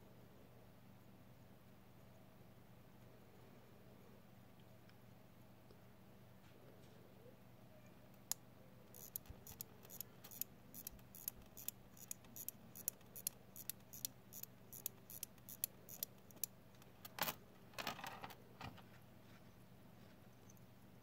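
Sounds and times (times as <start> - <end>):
watch winding clicks: 8.9 - 16.5.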